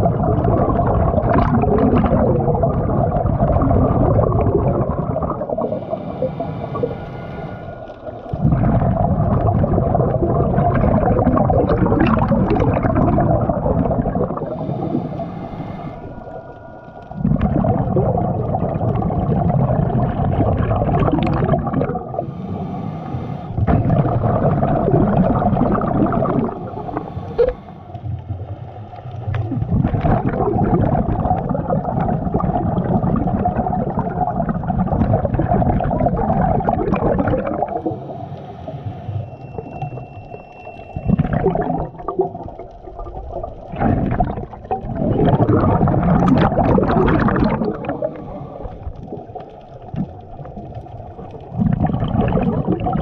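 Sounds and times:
exhaled bubbles rushing: 0.0s - 53.0s
diver breathing through regulator: 5.4s - 10.4s, 14.2s - 19.5s, 21.2s - 24.5s, 25.8s - 28.0s, 37.5s - 41.6s, 47.3s - 49.0s.

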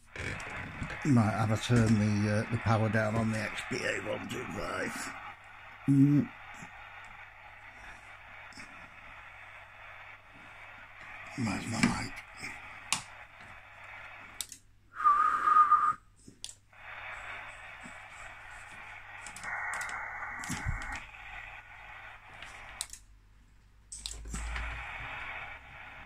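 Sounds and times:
shortwave receiver hiss: 0.0s - 26.0s
radio keying clicks: 0.1s - 14.7s, 16.2s - 23.1s
short wavering whistle: 14.9s - 16.1s.

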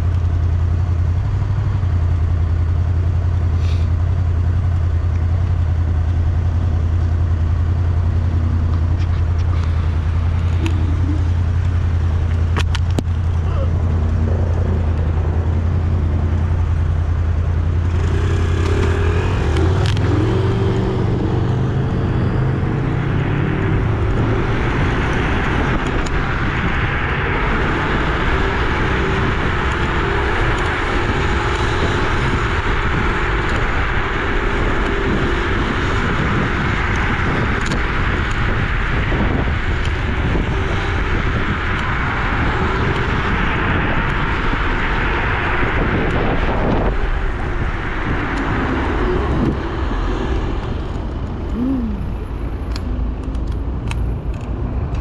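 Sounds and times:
wind rush and road noise: 0.0s - 55.0s.

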